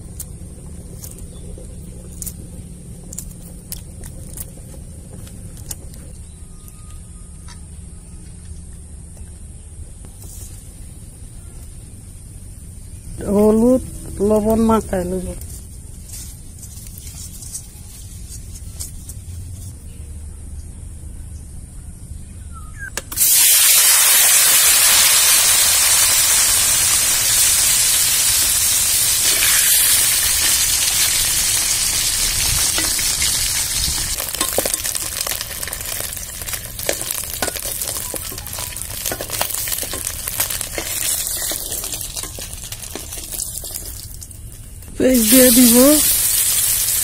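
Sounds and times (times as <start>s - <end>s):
oil popping and crackling: 0.0s - 6.2s, 23.0s - 47.0s
eggs sizzling in hot oil: 23.1s - 47.0s.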